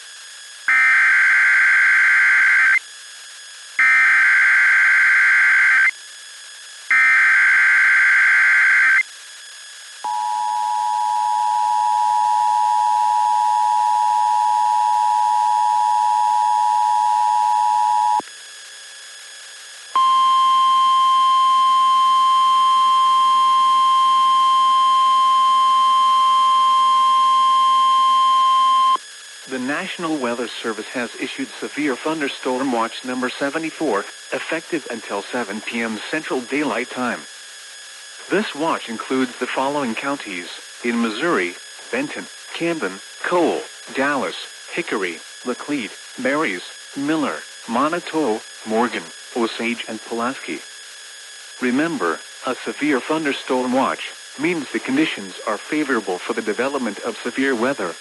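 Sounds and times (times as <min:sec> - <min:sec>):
piercing warning alarm tone: 0:00.7 - 0:02.9, 0:03.8 - 0:06.0, 0:06.9 - 0:09.2, 0:10.0 - 0:18.2, 0:19.9 - 0:29.0
raspy digital data bursts: 0:00.7 - 0:02.9, 0:03.8 - 0:06.0, 0:06.9 - 0:09.2.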